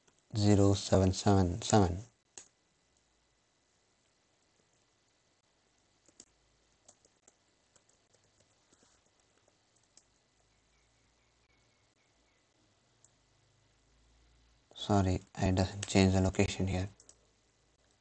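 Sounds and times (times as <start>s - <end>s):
keyboard typing: 6.0s - 10.2s, 15.6s - 18.0s.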